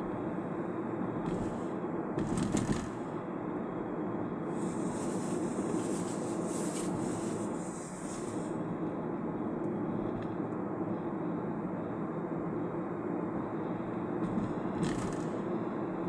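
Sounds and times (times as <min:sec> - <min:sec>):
car road and engine noise: 0:00.0 - 0:16.0
high-pitched hiss: 0:04.5 - 0:08.6.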